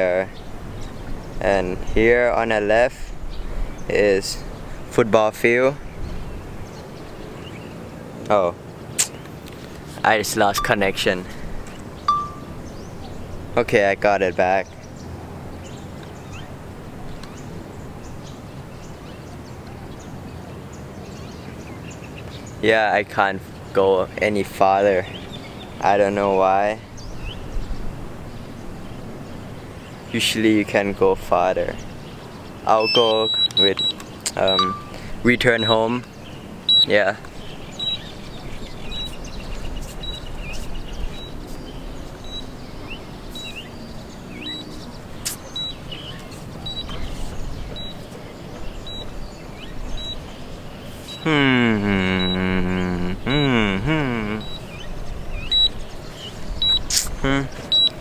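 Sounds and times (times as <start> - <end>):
wind rumbling on microphone: 0.0 - 4.9, 5.8 - 8.0, 26.8 - 29.7, 37.3 - 50.9
wind rumble on microphone: 5.8 - 7.9, 26.9 - 29.7
high bird chirps: 10.4 - 11.4, 12.0 - 12.9, 31.7 - 58.0
remote controller short high beeps: 12.1 - 12.5, 32.8 - 35.0, 54.4 - 54.6, 55.5 - 55.7, 56.6 - 56.8, 57.7 - 57.9.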